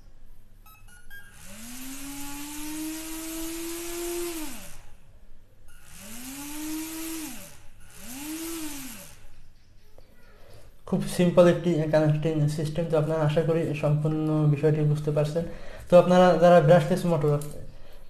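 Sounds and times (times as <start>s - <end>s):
small electric motor whining: 0.7s - 5.1s, 5.7s - 9.8s.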